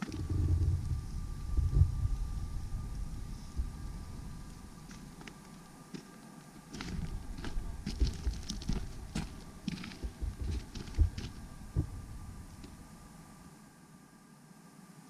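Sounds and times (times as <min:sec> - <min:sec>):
soft low thumps and clicks: 0:00.0 - 0:05.7, 0:06.8 - 0:13.1
faint thin whine: 0:00.0 - 0:15.0.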